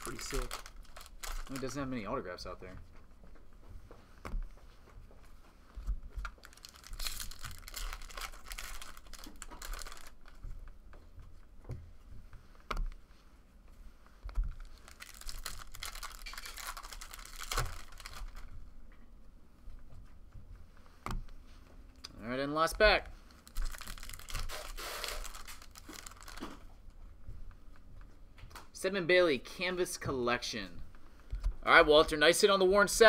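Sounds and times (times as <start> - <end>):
cards sliding and rustling: 24.2 - 26.4.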